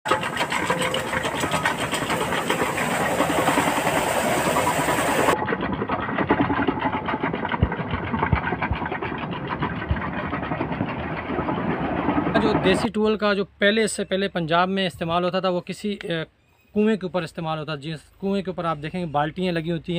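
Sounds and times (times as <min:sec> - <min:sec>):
tractor diesel engine running: 0:00.0 - 0:13.0
water spilling from buckets: 0:00.1 - 0:08.0.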